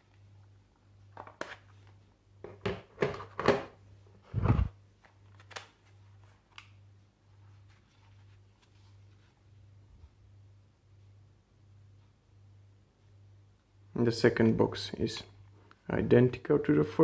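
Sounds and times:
plastic cases clicking and knocking: 2.4s - 3.7s.

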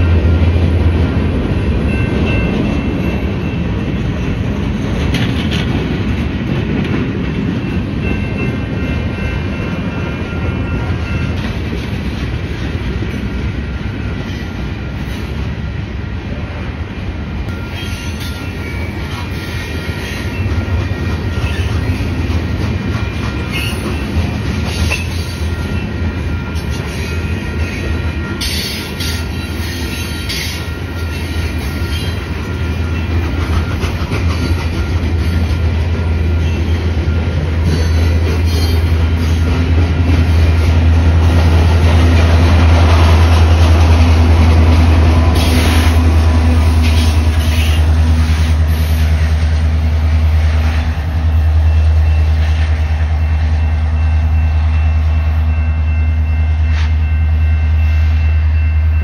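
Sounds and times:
diesel locomotive drone: 0.0s - 59.0s
train wheels clacking over rail joints: 4.0s - 13.4s, 17.5s - 53.7s
wheel squeal: 17.5s - 20.5s, 21.3s - 22.1s, 46.8s - 49.0s.

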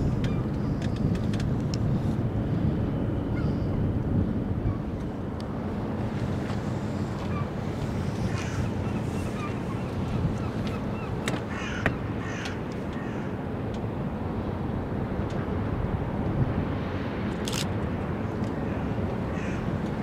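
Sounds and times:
steady low rumble: 0.0s - 20.0s
gulls calling: 6.8s - 13.3s, 18.5s - 19.8s.

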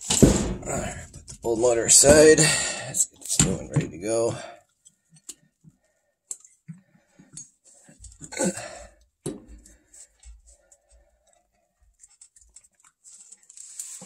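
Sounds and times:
knocks clicks and rustles of handling: 3.1s - 8.4s.

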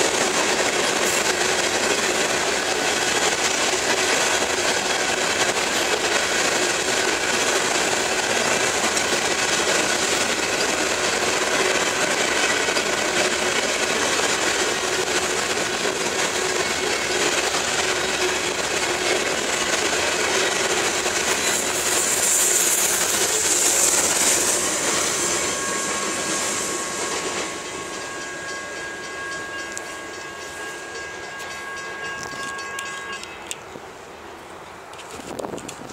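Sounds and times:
train wheels clattering on rails: 0.0s - 33.8s, 34.6s - 35.9s
thin high tone: 21.4s - 33.7s.

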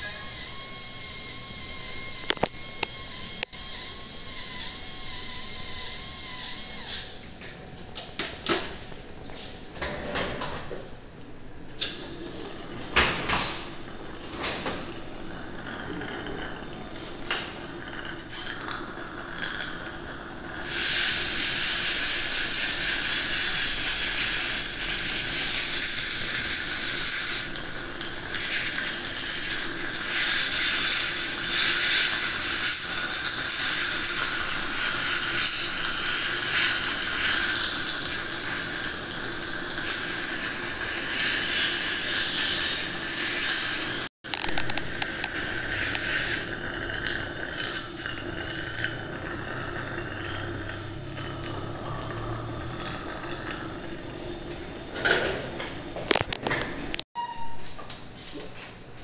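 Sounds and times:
saliva ejector sucking hiss: 20.4s - 46.5s.

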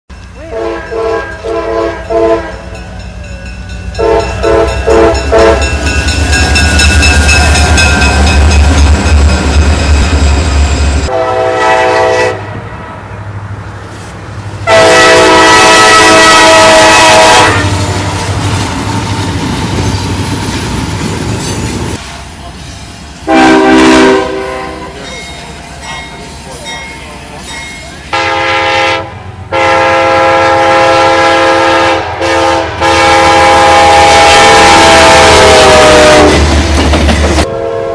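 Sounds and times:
locomotive rumbling past: 0.1s - 37.9s
locomotive horn blasts: 0.4s - 2.8s, 3.8s - 8.5s, 11.0s - 12.6s, 14.6s - 18.0s, 23.3s - 25.0s, 28.1s - 36.5s, 37.4s - 37.9s.

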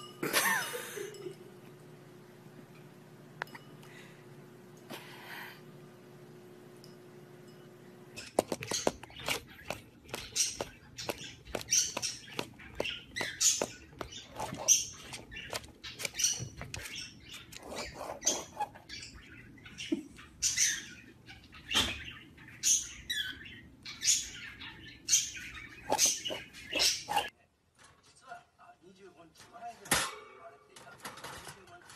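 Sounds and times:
parrot squeaky chirps: 8.6s - 27.3s.

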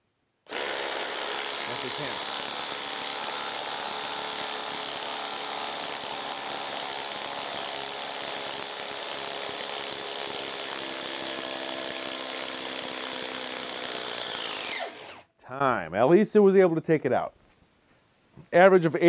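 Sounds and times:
impact driver hammering: 0.5s - 15.0s.

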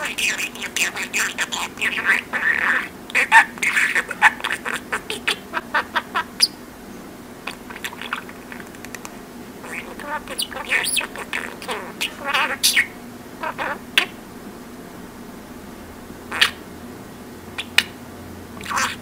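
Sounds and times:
budgerigar chirping and squawking: 0.0s - 6.6s, 7.5s - 8.6s, 9.6s - 14.2s, 16.3s - 16.6s, 17.6s - 18.0s, 18.6s - 19.0s.

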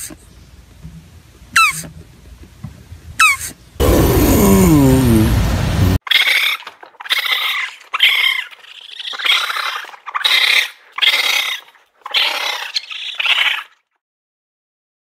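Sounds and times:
raccoon chittering: 6.1s - 13.8s.

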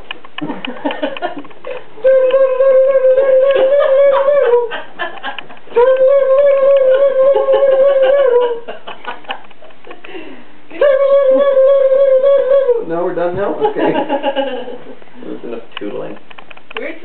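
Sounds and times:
small wind instrument long notes: 2.0s - 4.7s, 5.7s - 8.7s, 10.8s - 12.9s.

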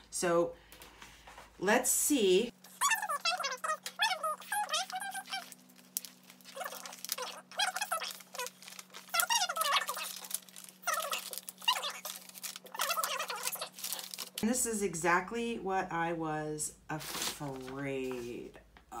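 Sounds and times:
plastic film crinkling: 2.6s - 14.4s, 17.0s - 18.3s.

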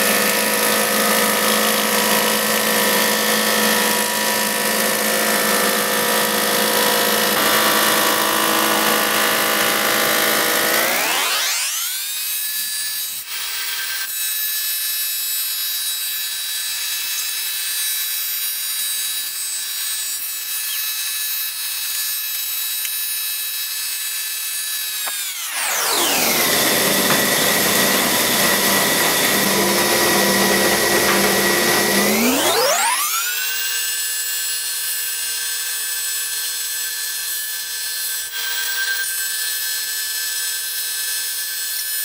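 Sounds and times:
planer machine whine: 0.0s - 12.4s, 24.9s - 34.5s, 38.2s - 39.8s
cutterhead cutting wood: 0.0s - 14.8s, 15.7s - 34.8s.

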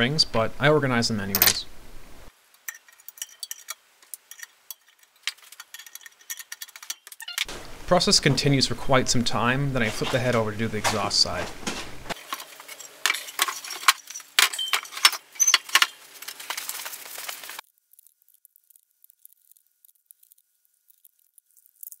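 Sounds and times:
metal parts clinking and knocking: 2.6s - 7.5s, 12.1s - 17.6s.

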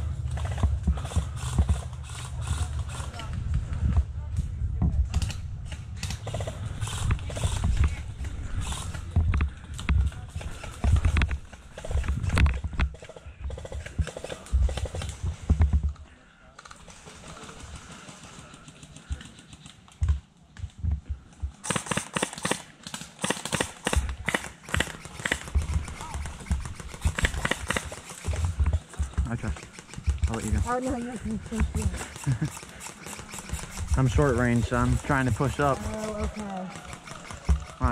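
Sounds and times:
sharp clicks: 31.5s - 37.9s.

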